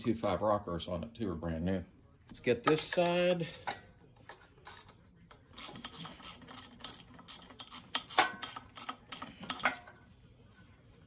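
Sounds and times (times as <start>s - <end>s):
hand ratchet clicking: 4.6s - 9.8s.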